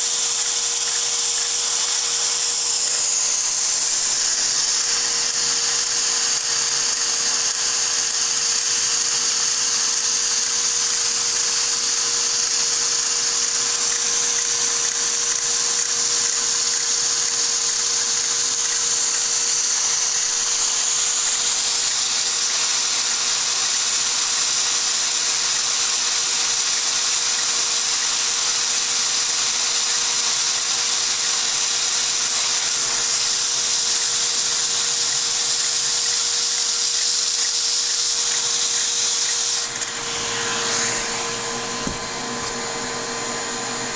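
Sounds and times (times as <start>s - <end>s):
small electric motor whirring: 0.0s - 43.9s.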